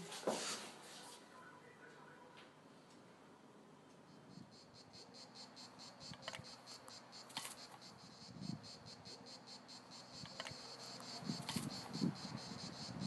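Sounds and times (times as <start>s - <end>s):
faint cricket chirping: 3.5s - 13.0s.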